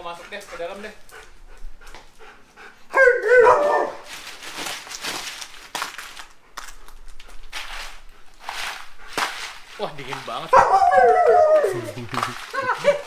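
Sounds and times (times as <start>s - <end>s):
dog barking: 2.9s - 4.1s, 10.5s - 11.9s.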